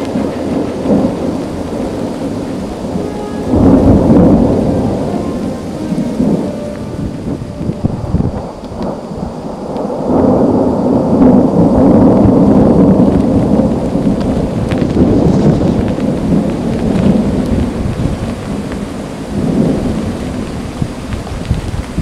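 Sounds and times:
steady rain: 0.0 - 22.0
thunder rumbling: 0.0 - 22.0.

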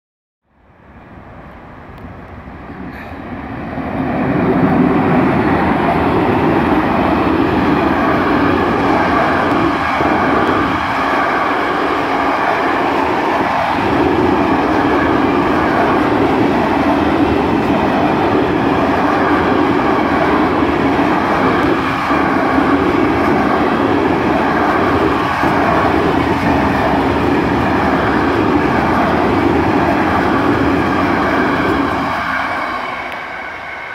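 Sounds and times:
electric locomotive passing: 0.5 - 33.9.

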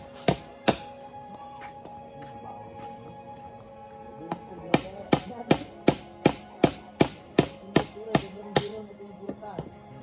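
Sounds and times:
faint background music: 0.0 - 10.0
hammer striking wood: 0.1 - 0.9, 4.3 - 9.8.

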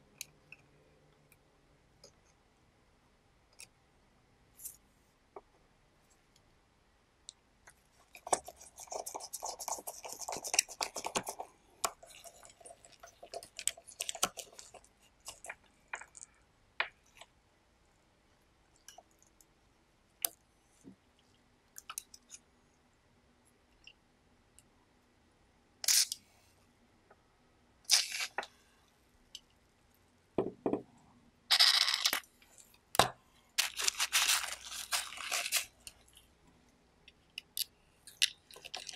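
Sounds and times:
rustling and scraping: 33.6 - 36.1.

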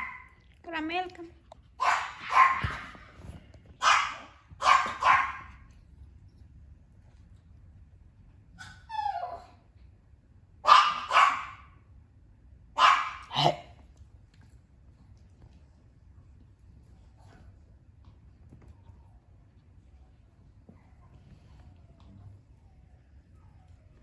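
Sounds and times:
small dog barking: 0.0 - 0.4, 1.8 - 3.0, 3.8 - 5.7, 10.6 - 11.7, 12.8 - 13.7.

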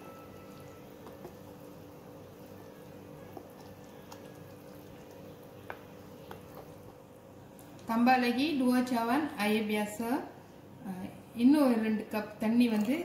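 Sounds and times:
batter stirred with spatula: 0.0 - 7.1
faint background music: 0.0 - 13.0.

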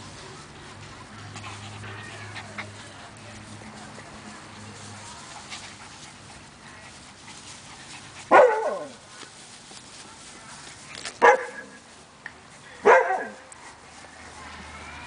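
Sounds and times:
puppies barking: 7.8 - 9.0.

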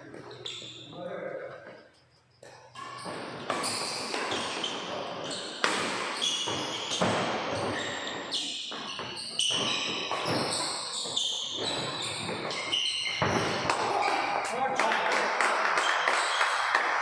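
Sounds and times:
shoes squeaking on wooden floor: 0.0 - 1.1, 2.7 - 14.6
racket hitting shuttlecock: 2.8 - 7.9, 8.7 - 17.0.

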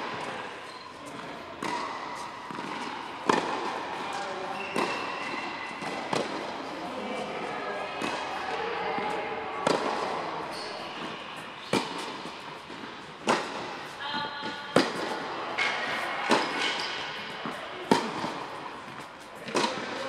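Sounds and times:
tennis ball bouncing: 1.1 - 6.6, 9.0 - 20.0
tennis ball struck by rackets: 1.2 - 4.1, 4.8 - 6.5, 9.0 - 10.2, 11.0 - 20.0.

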